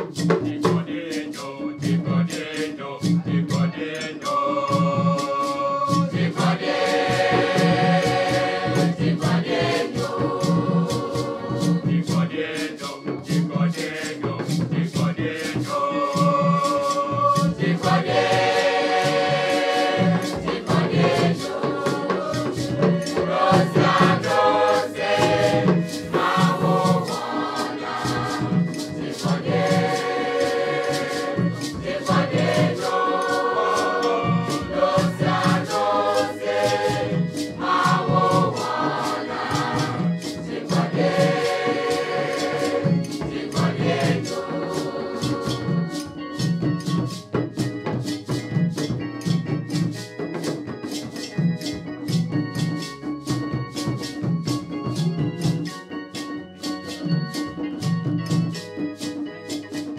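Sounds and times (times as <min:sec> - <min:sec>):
choir singing in harmony: 0:00.0 - 0:47.3
hand drums: 0:00.0 - 0:59.9.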